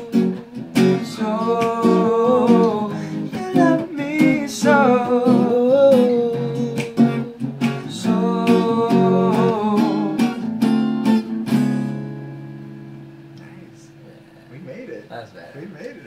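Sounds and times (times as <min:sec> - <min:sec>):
person singing: 0:00.0 - 0:10.5
acoustic guitar strumming: 0:00.0 - 0:14.4.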